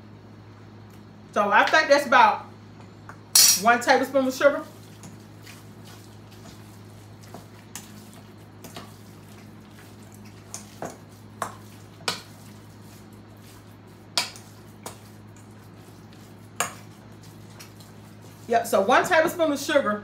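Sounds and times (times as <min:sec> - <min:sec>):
metal utensil clinking in bowl: 0:03.4 - 0:03.7.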